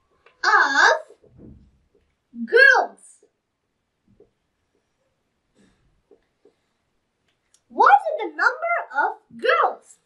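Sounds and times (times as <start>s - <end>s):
marker writing on whiteboard: 0.1s - 2.2s, 5.6s - 6.8s.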